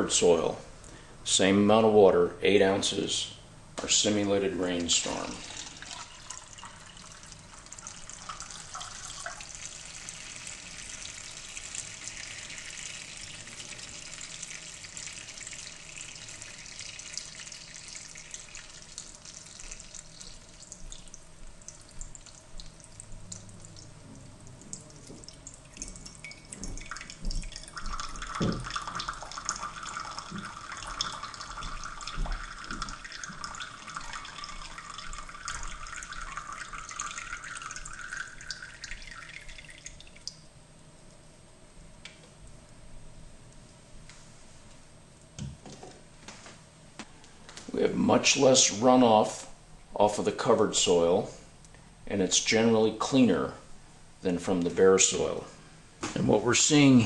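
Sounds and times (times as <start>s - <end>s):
water drips: 4.7s - 40.4s.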